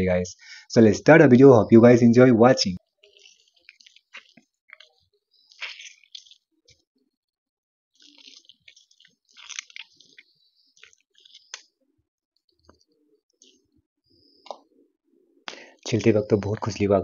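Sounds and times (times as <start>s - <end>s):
lime squelching: 2.8s - 6.8s, 7.9s - 11.9s
small crackly clicks: 3.0s - 6.8s, 8.0s - 11.8s.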